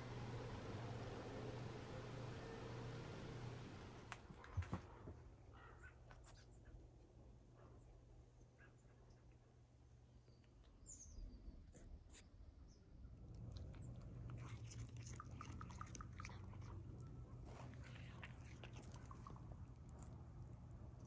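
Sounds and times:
faint bird chirp: 7.7s - 13.0s
cat chewing grass: 13.1s - 21.0s.

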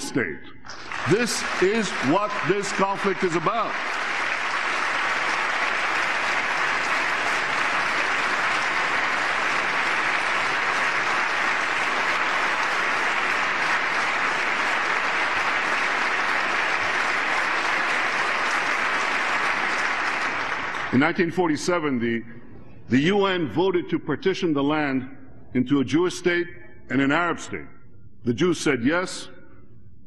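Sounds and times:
large audience applauding: 0.7s - 21.2s.

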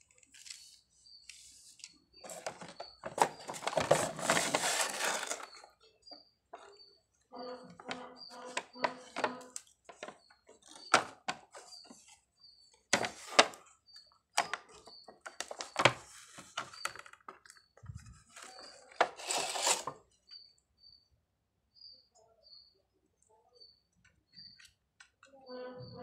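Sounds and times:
plastic packaging crackling: 2.3s - 5.7s, 14.4s - 20.0s.

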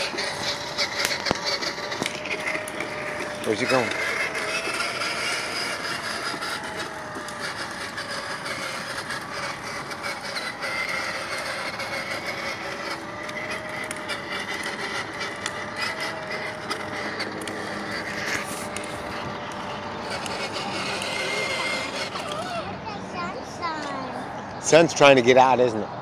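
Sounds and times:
toy electric motor whine: 0.0s - 25.2s
plastic wheels rumbling on concrete: 0.0s - 25.4s
scattered clicks: 10.3s - 22.5s.

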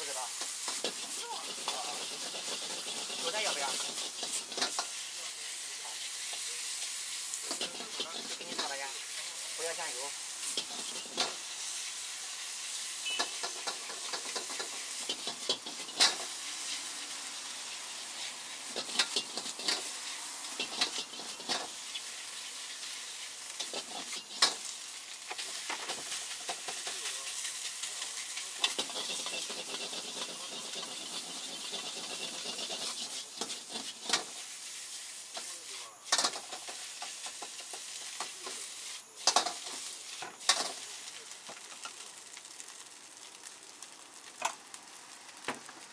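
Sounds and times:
rice sizzling in a wok: 0.0s - 45.9s
metal ladle scraping a wok: 0.3s - 5.0s, 6.2s - 9.6s, 10.3s - 12.1s, 12.7s - 16.9s, 17.7s - 24.7s, 28.2s - 34.4s.

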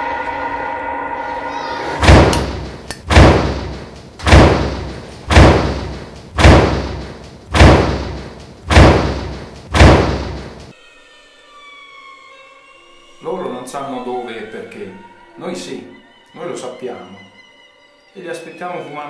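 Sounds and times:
heavy echoing thud: 2.0s - 10.7s.

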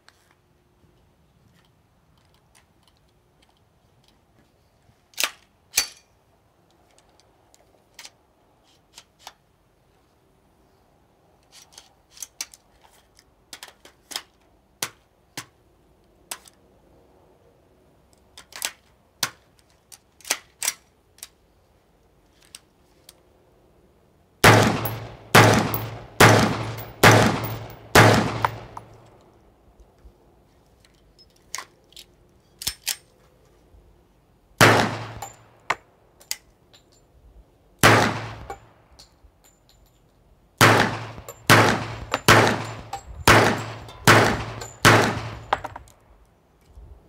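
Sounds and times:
rifle metallic clicks: 5.1s - 6.1s, 18.2s - 21.4s, 24.5s - 29.4s, 30.8s - 33.2s, 40.6s - 46.3s
rifle shots echoing: 24.4s - 28.9s, 34.6s - 35.4s, 37.8s - 38.6s, 40.6s - 45.7s.

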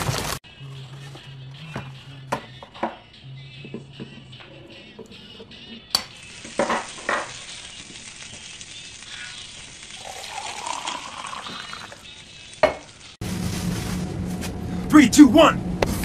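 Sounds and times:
egg sizzling in a pan: 6.0s - 13.2s
drink pouring into a mug: 9.9s - 12.8s.

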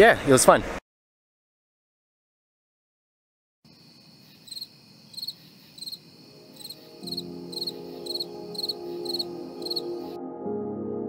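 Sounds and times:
cricket chirping: 3.7s - 10.2s
high insect trill: 3.7s - 10.2s
soft ambient music: 6.3s - 11.0s.

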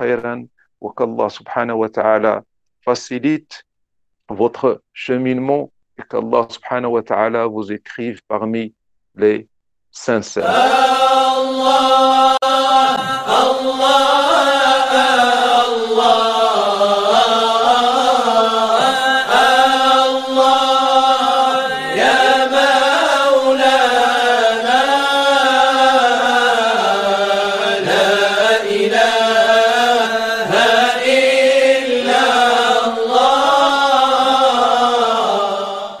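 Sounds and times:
person chanting: 10.2s - 36.0s.

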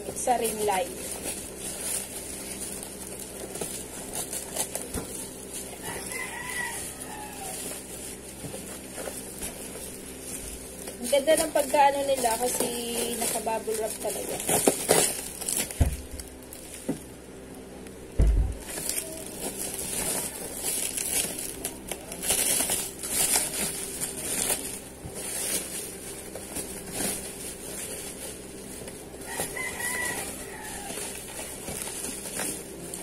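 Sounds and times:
bubble wrap crinkling: 0.0s - 33.0s
rooster crowing: 5.7s - 8.0s, 29.2s - 31.6s
thump: 18.2s - 18.6s.

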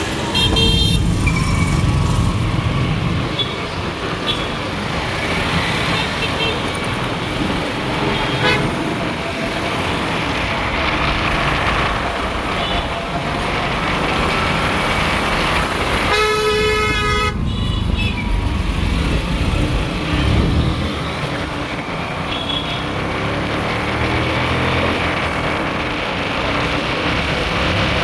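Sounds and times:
road traffic rumble: 0.0s - 28.0s
vehicle horn honking: 0.4s - 1.1s, 16.1s - 18.1s.

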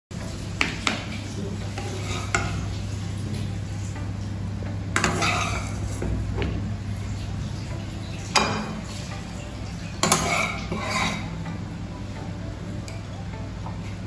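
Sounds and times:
metal spatula scraping in wok: 1.8s - 2.6s, 5.0s - 5.8s, 10.0s - 11.4s.

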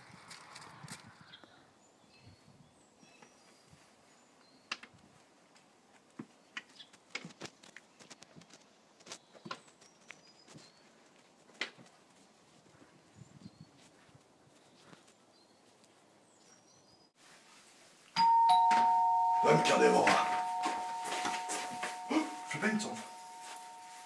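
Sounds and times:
footsteps on concrete steps: 18.5s - 24.0s
walking cane tapping: 18.6s - 24.0s.

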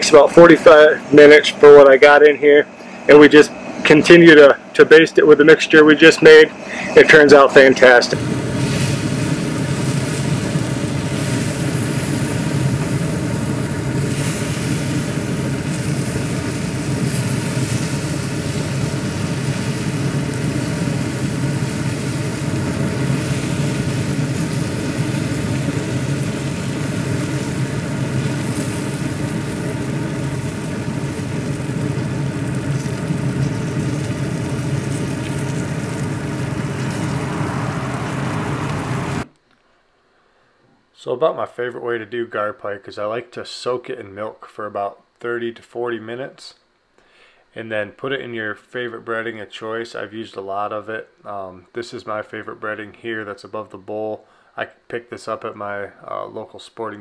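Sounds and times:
fan motor humming: 0.0s - 39.4s.

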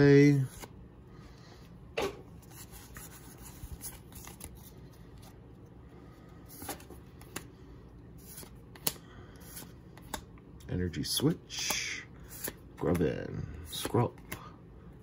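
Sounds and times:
trading cards rustling and clicking: 2.3s - 5.5s, 6.4s - 7.6s, 8.2s - 10.4s, 11.6s - 14.5s
card flicking: 8.3s - 9.0s.

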